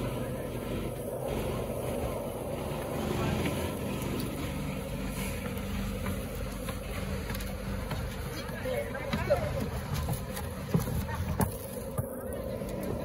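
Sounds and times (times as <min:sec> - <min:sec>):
engine running steadily: 0:00.0 - 0:13.0
boots on wooden planks: 0:05.4 - 0:12.2.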